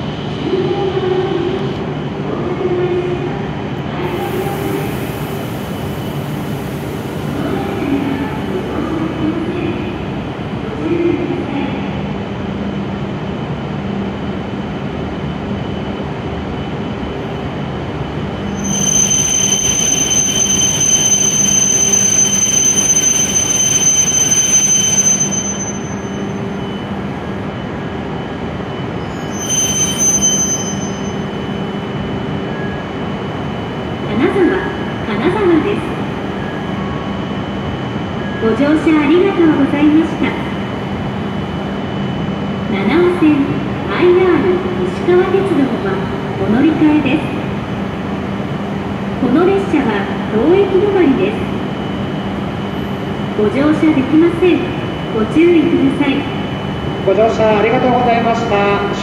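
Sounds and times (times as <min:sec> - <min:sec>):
train rumbling: 0:00.0 - 0:59.0
train brake squeal: 0:04.1 - 0:08.2, 0:18.4 - 0:26.9, 0:28.7 - 0:31.6.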